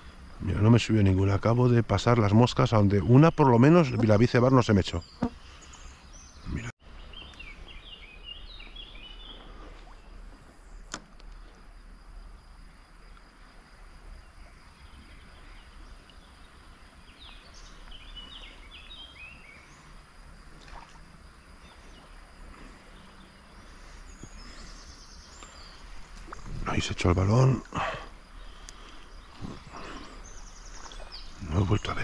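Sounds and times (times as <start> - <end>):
bird chirping: 3.0 - 10.8, 17.1 - 19.9.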